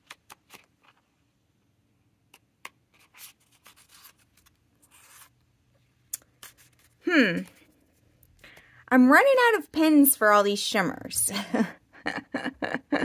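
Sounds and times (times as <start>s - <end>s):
cards sliding and rubbing: 2.6s - 5.4s, 6.3s - 8.0s.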